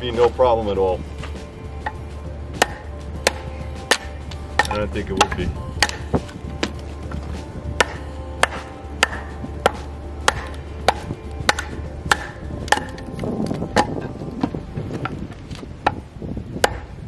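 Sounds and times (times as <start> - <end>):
wooden baton knocking knife spine: 2.6 - 6.8.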